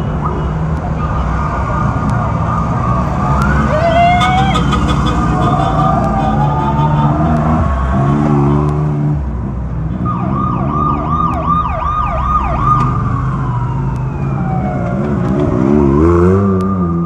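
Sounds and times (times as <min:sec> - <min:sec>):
siren yelping: 0:00.2 - 0:08.6, 0:10.1 - 0:17.0
engine revving: 0:00.7 - 0:11.5, 0:12.6 - 0:17.0
race vehicle engines rolling past: 0:01.0 - 0:09.4, 0:12.4 - 0:17.0.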